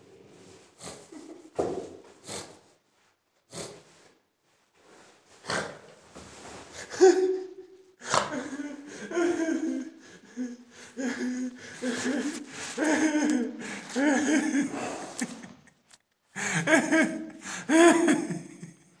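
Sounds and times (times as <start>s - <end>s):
person laughing wheezily: 6.8s - 18.9s.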